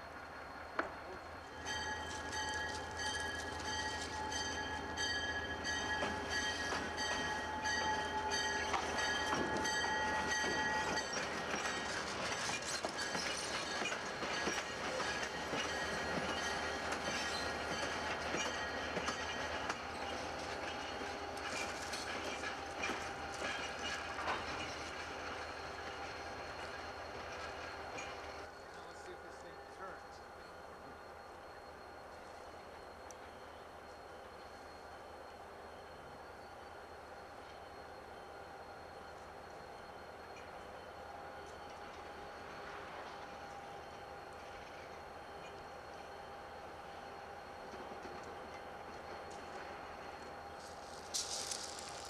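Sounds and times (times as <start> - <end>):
freight train rolling past: 0.0 - 52.0
wheels clicking over rail joints: 1.6 - 28.9, 47.7 - 52.0.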